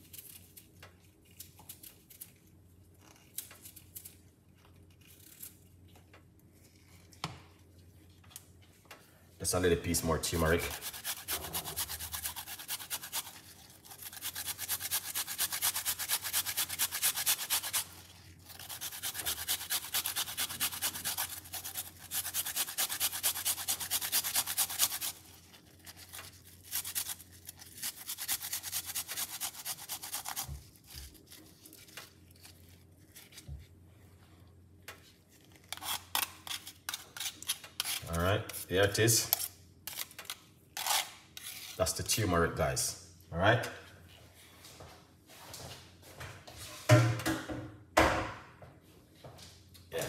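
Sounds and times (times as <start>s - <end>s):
root grated on metal grater: 10.3s - 17.9s.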